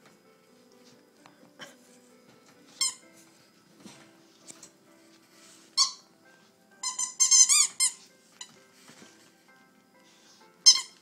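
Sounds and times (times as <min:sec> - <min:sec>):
rubber ball squeaking: 0:05.8 - 0:06.0, 0:06.8 - 0:08.0, 0:10.6 - 0:11.0.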